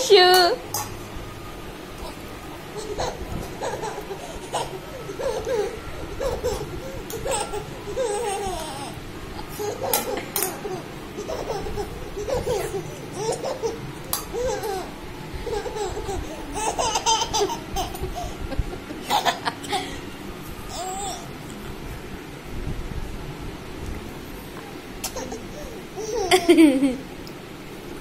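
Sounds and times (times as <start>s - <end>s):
toddler laughing: 2.8s - 19.9s, 25.0s - 27.1s.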